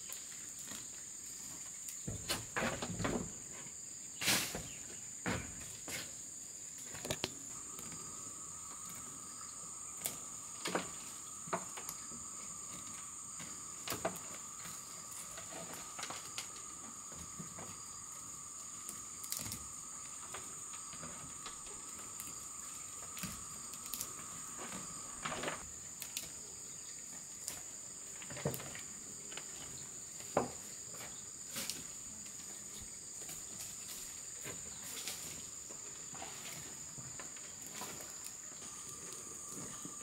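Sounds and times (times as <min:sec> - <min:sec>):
lower steady insect tone: 0:00.0 - 0:40.0
crackles of weeds being pulled: 0:06.8 - 0:26.4
shrill insect drone: 0:07.0 - 0:27.6, 0:33.6 - 0:40.0.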